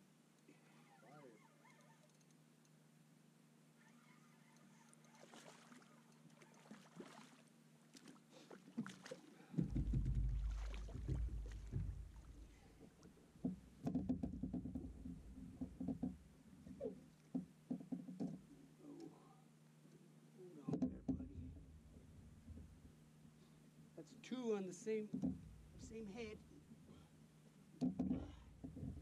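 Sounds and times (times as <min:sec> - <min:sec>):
fish thrashing and splashing: 0:05.1 - 0:12.8
knocks on boat: 0:09.5 - 0:16.2, 0:20.7 - 0:21.5
low rumbling: 0:09.6 - 0:16.9.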